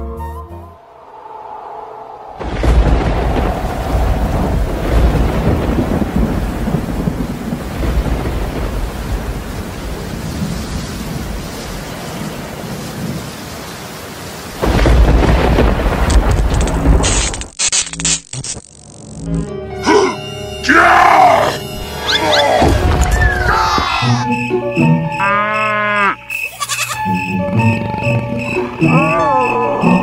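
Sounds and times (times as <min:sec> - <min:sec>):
heavy rain: 0:00.8 - 0:18.2, 0:19.9 - 0:24.2
rolling thunder: 0:01.2 - 0:17.3
loud thunderclap: 0:02.3 - 0:13.5, 0:14.3 - 0:17.2.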